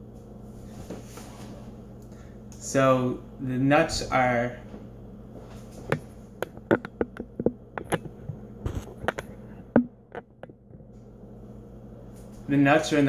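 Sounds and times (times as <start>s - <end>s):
steady low hum: 0.0s - 13.0s
sharp clicks and knocks: 5.9s - 10.9s.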